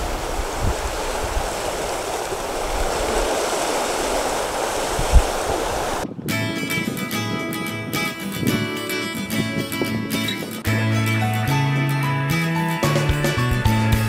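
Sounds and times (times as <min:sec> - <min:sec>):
water sloshing around boat: 0:00.0 - 0:06.0
wind buffeting microphone: 0:00.0 - 0:10.7
acoustic guitar music: 0:06.1 - 0:14.0.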